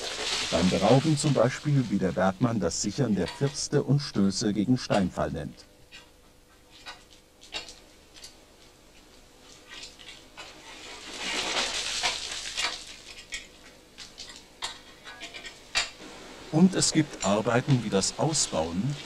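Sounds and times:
crumbling stone rattling down: 0:10.8 - 0:13.5.

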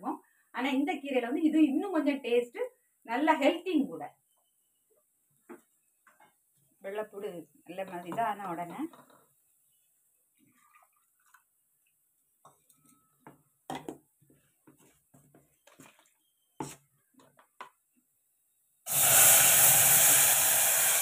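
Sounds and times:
sizzle and hiss of steam: 0:18.8 - 0:21.0.

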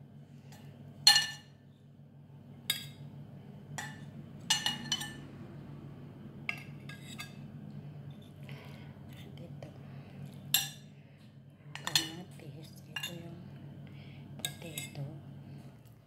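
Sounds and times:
utensil clinking on ceramic plates: 0:01.0 - 0:01.5, 0:03.8 - 0:05.2, 0:10.5 - 0:10.9, 0:11.8 - 0:13.3.

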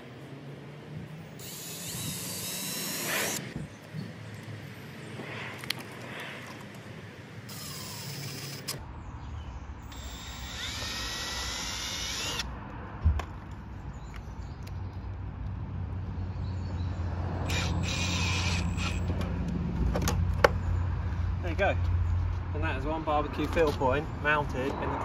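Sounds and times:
cordless drill driving screws: 0:01.4 - 0:03.6, 0:07.5 - 0:08.8, 0:09.8 - 0:12.5, 0:17.5 - 0:19.1.

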